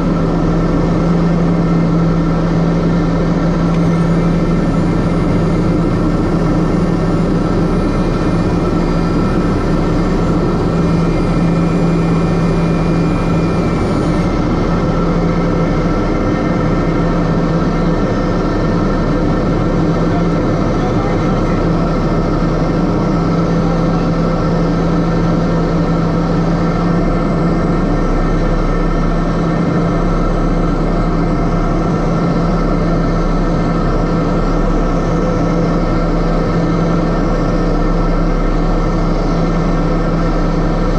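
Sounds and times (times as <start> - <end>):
turboprop engine drone: 0.0 - 40.9.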